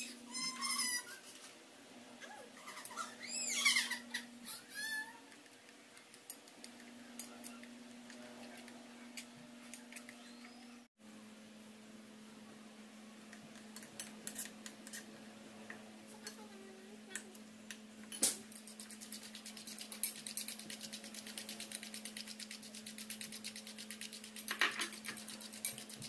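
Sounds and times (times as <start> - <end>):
fork whisking in a ceramic bowl: 13.5 - 15.1, 18.2 - 26.0
spoon stirring thick mixture: 18.5 - 26.0.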